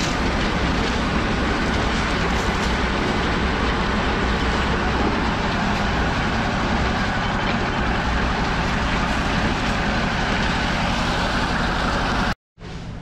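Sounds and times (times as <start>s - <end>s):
concrete mixer droning: 0.0s - 12.4s.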